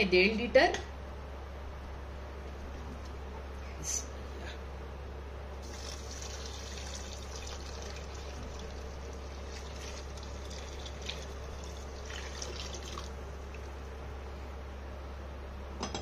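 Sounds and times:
milk pouring and splashing: 5.6 - 13.8.

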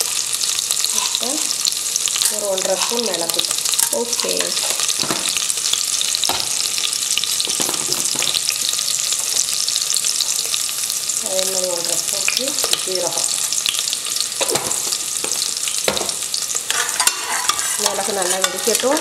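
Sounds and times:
spices sizzling in hot oil: 0.0 - 19.0.

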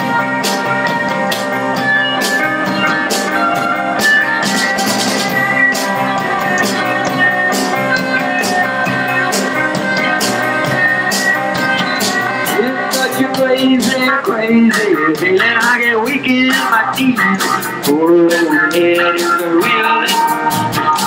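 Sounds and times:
drum kit steady beat: 0.0 - 21.0
electric guitar: 0.0 - 21.0.

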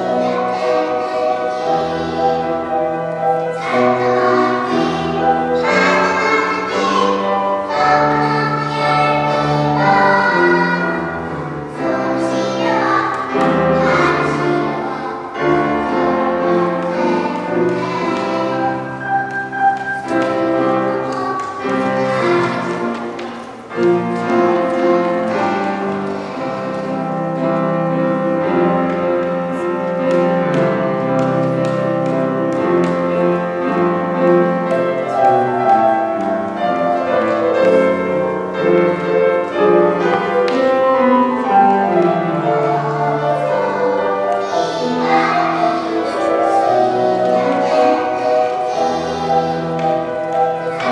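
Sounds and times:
children's choir singing: 0.0 - 50.9
instrumental accompaniment: 0.0 - 50.9.

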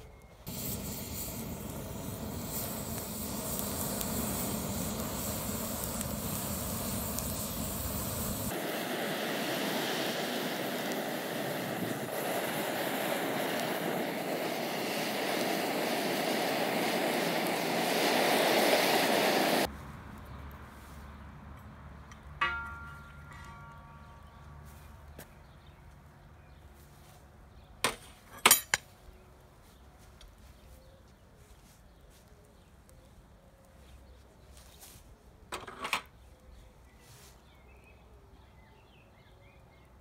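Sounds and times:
fire rushing noise: 0.4 - 19.9.

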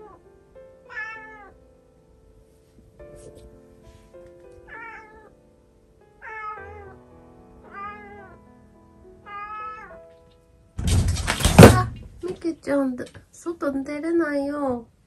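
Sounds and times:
soft background music: 0.0 - 10.9
cat meowing: 0.9 - 1.6, 4.7 - 5.4, 6.2 - 7.0, 7.6 - 8.4, 9.2 - 10.0.

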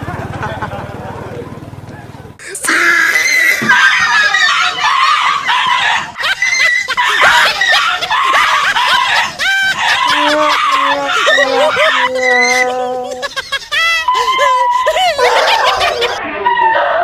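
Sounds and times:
dog yelping and shrieking: 2.7 - 17.0.

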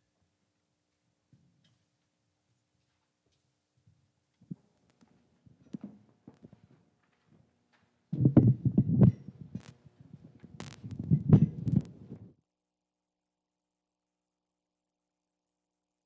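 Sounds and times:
microphone clicks: 8.1 - 12.3
microphone handling thumps: 8.1 - 12.3.

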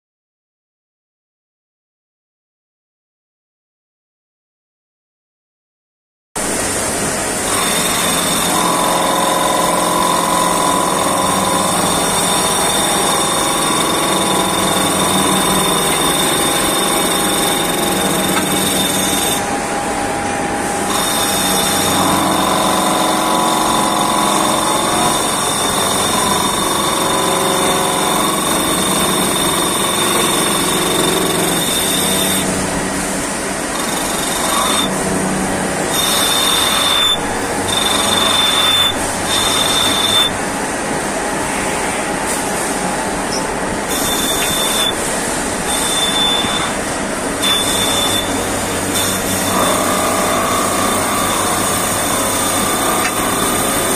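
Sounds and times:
lathe high whine: 6.4 - 53.9
wavering machine tones: 10.4 - 22.4.

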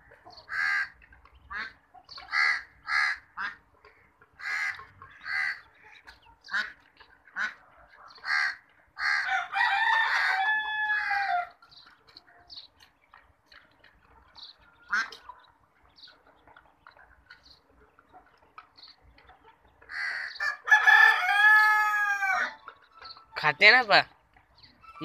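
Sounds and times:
rooster crowing: 9.1 - 11.5, 20.4 - 22.6.

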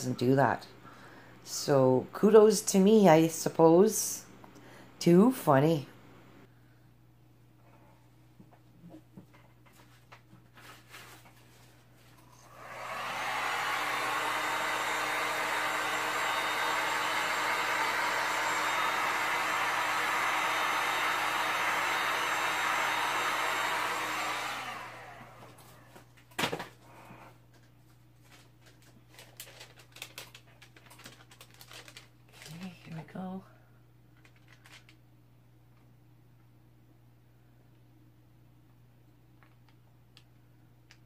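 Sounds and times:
heat gun blowing: 12.2 - 25.8.

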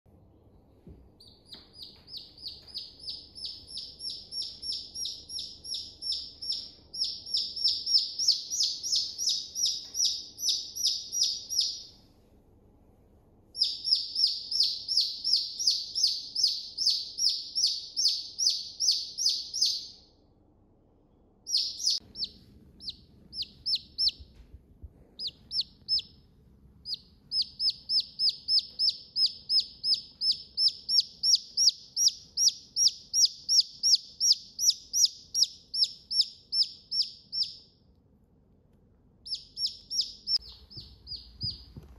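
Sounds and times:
chick peeping: 1.2 - 11.9, 13.6 - 19.9, 21.5 - 24.4, 25.2 - 26.2, 26.8 - 37.6, 39.2 - 41.9.

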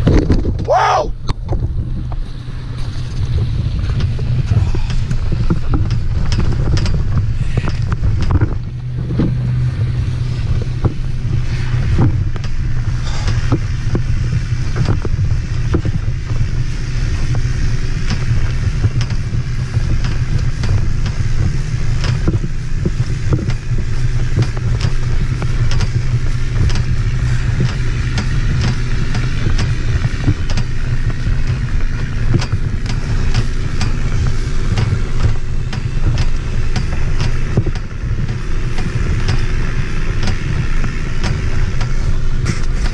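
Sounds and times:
wind buffeting microphone: 0.0 - 42.9
small knocks and rattles: 1.4 - 9.9.

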